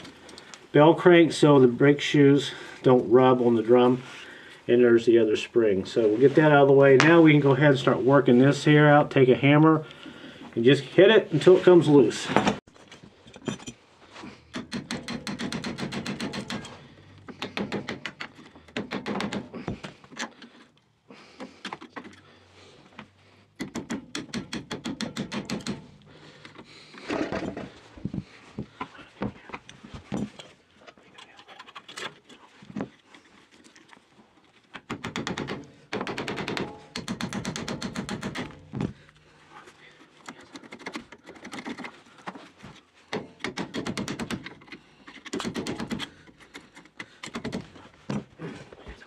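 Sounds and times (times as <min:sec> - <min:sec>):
hammer striking metal pin: 0:14.5 - 0:16.8, 0:23.6 - 0:26.0, 0:34.9 - 0:38.8.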